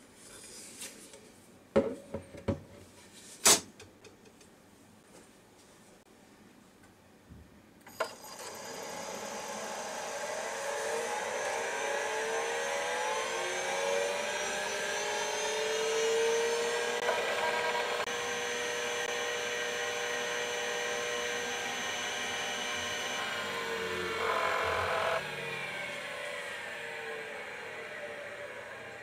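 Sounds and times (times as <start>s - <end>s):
spindle motors whining: 7.9s - 29.0s.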